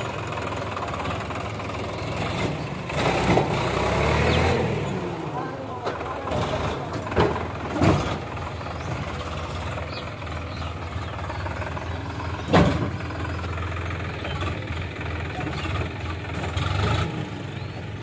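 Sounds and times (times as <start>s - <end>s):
tractor diesel engine running: 0.0s - 18.0s
sharp clunks: 12.4s - 13.0s.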